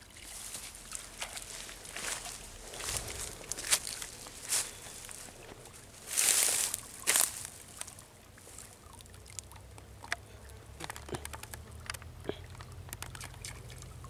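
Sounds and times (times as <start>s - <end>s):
small water plips: 0.0s - 14.0s
water dripping and sloshing: 0.0s - 14.0s
water splash: 13.0s - 14.0s.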